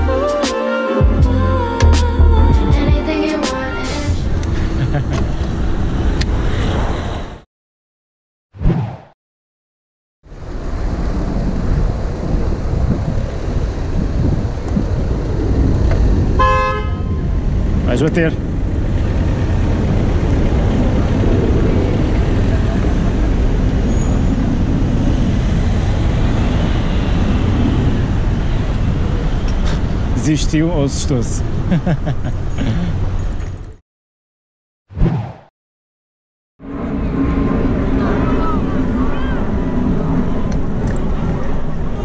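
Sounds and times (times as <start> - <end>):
low traffic rumble: 4.1 - 7.4, 10.3 - 33.8, 36.6 - 42.0
wind buffeting microphone: 10.5 - 16.4, 17.2 - 30.2.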